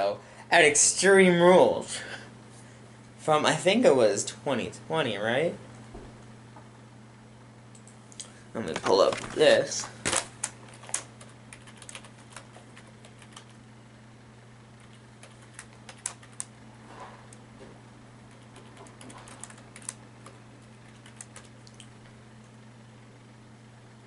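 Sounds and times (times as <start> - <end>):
low steady hum: 0.0 - 24.0
typing on keyboard: 10.4 - 13.6, 14.8 - 16.5, 18.3 - 20.0, 20.9 - 21.8.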